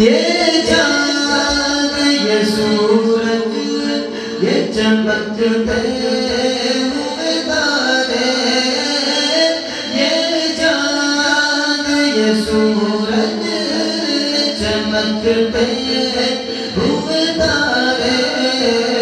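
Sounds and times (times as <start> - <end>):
man singing into a microphone: 0.0 - 19.0.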